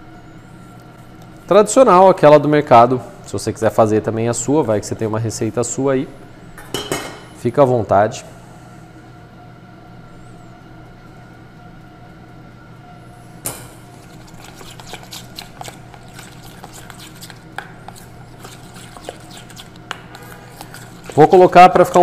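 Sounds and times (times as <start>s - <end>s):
steady low hum: 0.0s - 22.0s
spoon stirring thick mixture: 13.9s - 22.0s.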